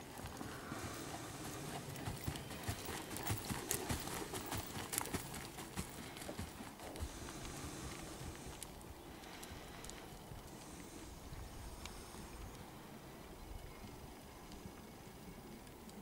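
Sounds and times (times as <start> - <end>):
horse hoofbeats cantering: 0.0 - 8.0.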